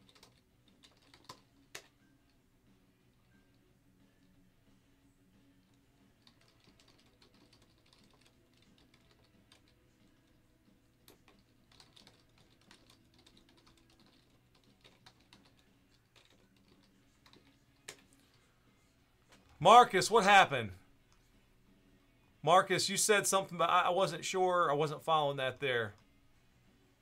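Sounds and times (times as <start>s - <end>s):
typing on keyboard: 0.0s - 2.0s, 6.2s - 10.4s, 11.0s - 18.3s.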